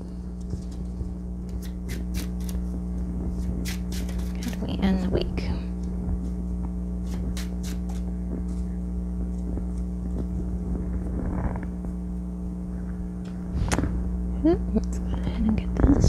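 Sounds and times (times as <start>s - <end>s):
low electrical hum: 0.0s - 16.0s
playing cards rustling: 0.2s - 2.7s, 3.3s - 4.7s, 7.0s - 8.7s.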